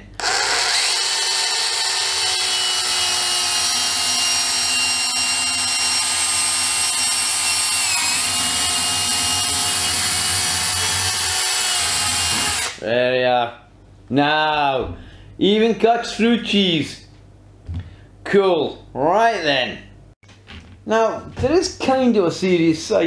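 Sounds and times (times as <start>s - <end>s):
cordless saw motor whine: 0.2s - 12.8s.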